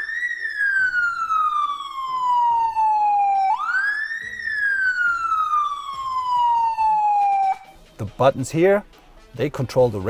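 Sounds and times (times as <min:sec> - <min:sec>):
siren wailing: 0:00.0 - 0:07.8.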